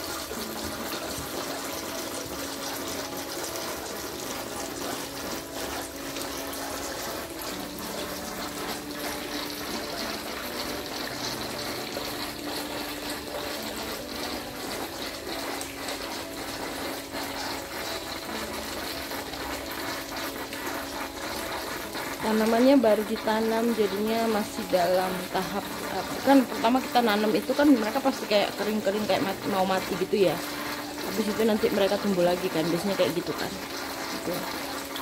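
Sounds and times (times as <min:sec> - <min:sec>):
fountain water splashing into pond: 0:00.0 - 0:35.0.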